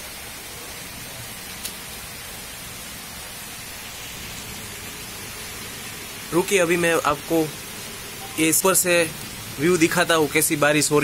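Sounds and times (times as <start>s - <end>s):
heavy rain hissing: 0.0s - 11.0s.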